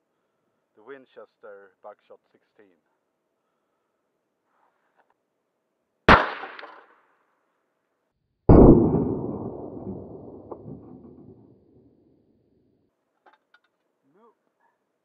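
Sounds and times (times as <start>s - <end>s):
shotgun shot echoing: 6.1s - 6.9s, 8.5s - 11.9s.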